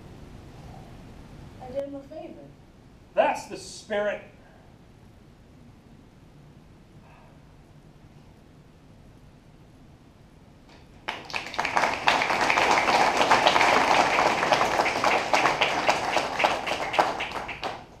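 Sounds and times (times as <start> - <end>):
audience applauding: 11.0 - 18.0.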